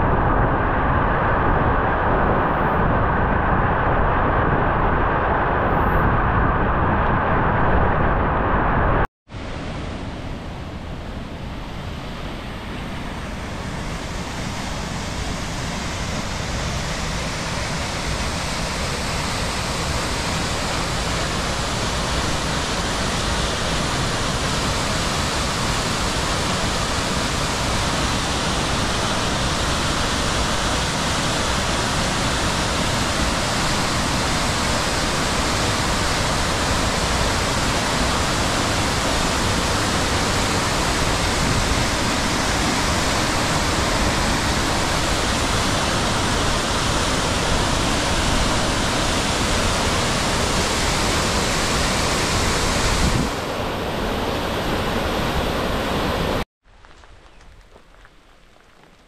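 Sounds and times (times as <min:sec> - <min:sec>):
waterfall rushing: 0:13.4 - 0:56.4.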